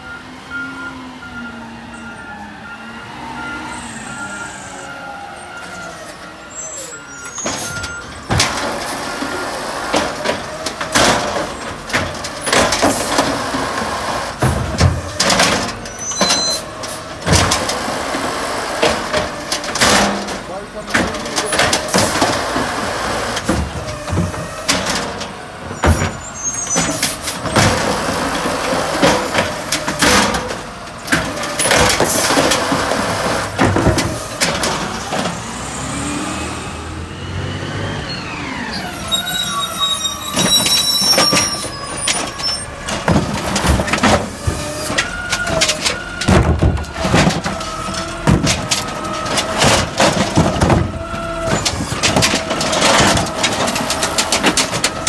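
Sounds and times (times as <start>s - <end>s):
diesel engine and hydraulics whining: 0.0s - 55.0s
cart banging against metal arm: 7.3s - 35.4s, 40.1s - 55.0s.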